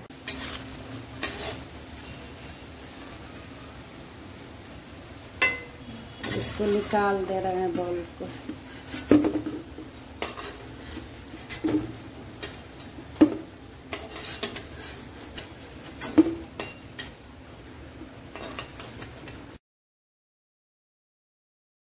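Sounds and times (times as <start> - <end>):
hot oil sizzling: 0.0 - 19.6
spatula scraping metal pan: 0.2 - 1.7, 6.1 - 7.4, 10.2 - 12.6, 13.9 - 17.1.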